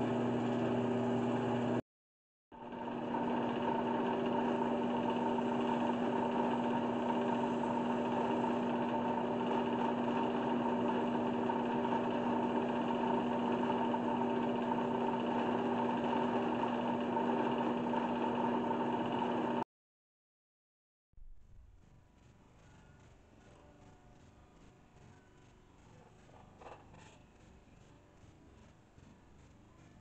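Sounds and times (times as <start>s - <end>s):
wood lathe motor humming: 0.0s - 1.8s, 2.6s - 19.6s.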